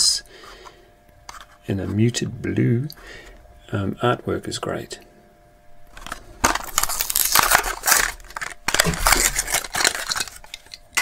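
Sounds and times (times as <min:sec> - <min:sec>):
plastic packaging crinkling: 0:05.9 - 0:11.0.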